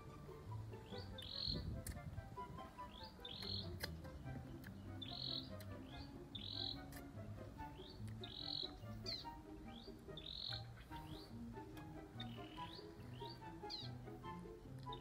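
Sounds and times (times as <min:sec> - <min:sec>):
soft background music: 0:00.0 - 0:15.0
bird high call: 0:00.8 - 0:01.7, 0:02.8 - 0:03.9, 0:04.9 - 0:07.0, 0:07.7 - 0:11.4, 0:12.2 - 0:14.0.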